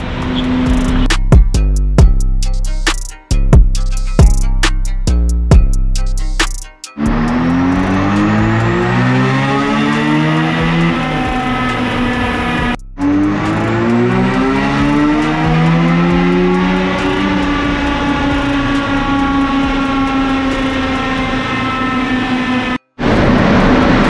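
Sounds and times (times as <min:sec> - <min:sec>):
rotary engine revving: 0:07.0 - 0:24.0.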